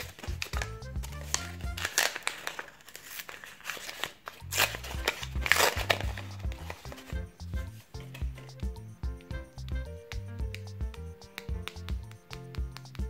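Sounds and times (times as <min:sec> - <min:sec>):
background music with low bass: 0:00.0 - 0:02.3, 0:04.4 - 0:13.0
paper crinkling and rustling: 0:00.0 - 0:07.2.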